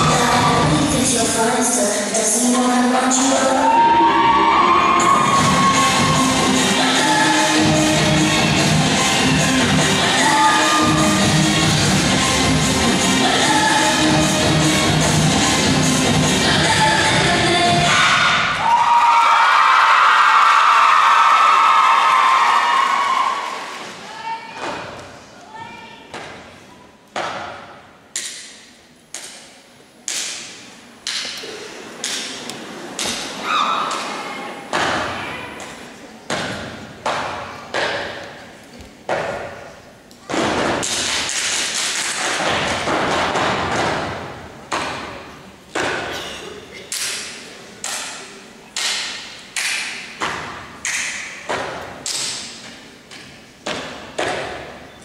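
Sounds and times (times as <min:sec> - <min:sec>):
stomps and claps echoing: 0:26.1 - 0:54.8.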